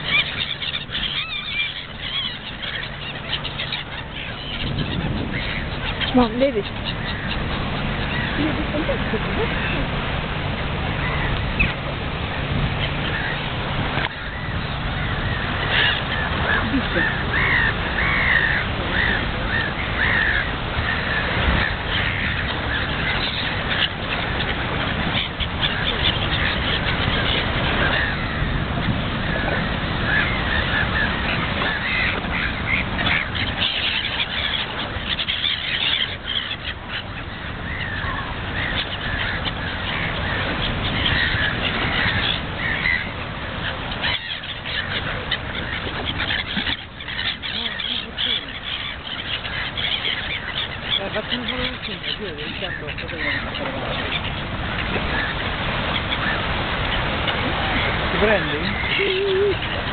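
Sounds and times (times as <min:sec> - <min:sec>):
gulls and ducks calling: 0:00.0 - 0:59.9
waves: 0:00.0 - 0:59.9
wind: 0:00.0 - 0:59.9.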